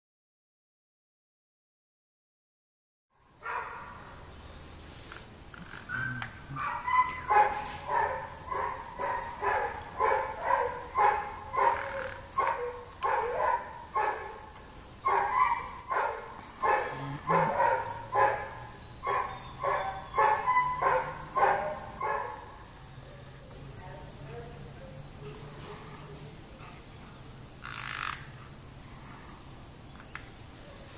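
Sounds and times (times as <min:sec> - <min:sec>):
dog barking: 0:03.4 - 0:04.0, 0:05.9 - 0:14.5, 0:15.1 - 0:23.5.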